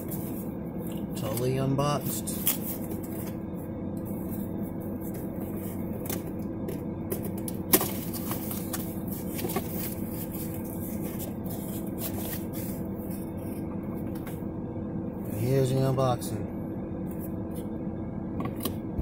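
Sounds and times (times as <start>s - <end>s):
cardboard rustling and scraping: 0.0s - 0.5s, 7.2s - 14.4s
low hum inside car: 0.0s - 19.0s.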